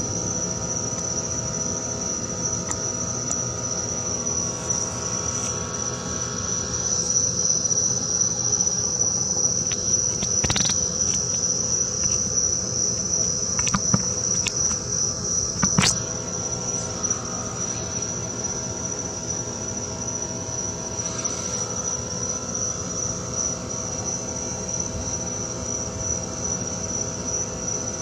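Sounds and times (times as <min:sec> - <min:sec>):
crickets trilling: 0:00.0 - 0:28.0
sharp clicks: 0:09.6 - 0:12.3, 0:13.5 - 0:14.8, 0:15.6 - 0:16.0.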